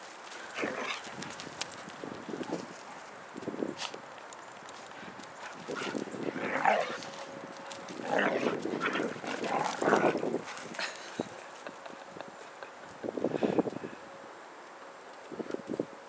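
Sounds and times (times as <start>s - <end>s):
dogs growling and barking: 0.4s - 1.2s, 5.4s - 11.3s.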